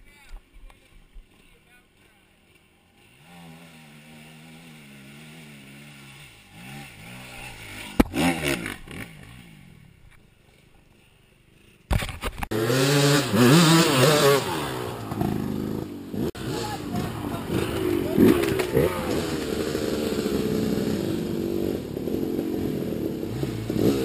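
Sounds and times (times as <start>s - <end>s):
quad engine revving: 3.0s - 9.9s, 12.4s - 24.0s.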